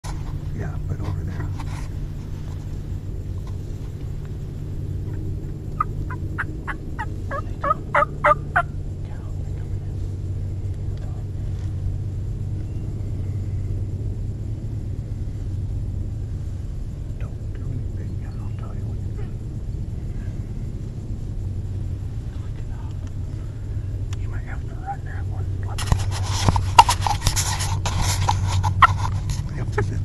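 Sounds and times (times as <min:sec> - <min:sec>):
turkey calling: 0:05.0 - 0:08.7, 0:26.7 - 0:27.2, 0:28.6 - 0:29.1.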